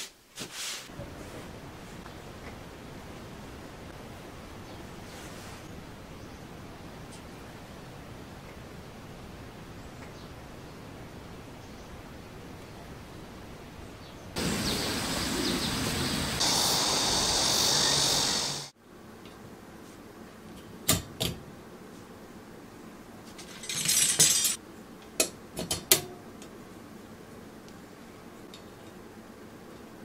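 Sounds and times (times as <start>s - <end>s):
steady hissing: 14.4s - 18.8s
wire rack clinking: 23.4s - 24.6s.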